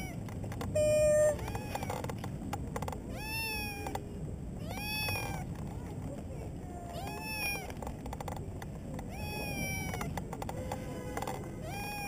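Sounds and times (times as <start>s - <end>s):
cat meowing: 0.8s - 2.0s, 3.1s - 4.0s, 4.6s - 5.5s, 6.9s - 7.7s, 9.1s - 12.0s.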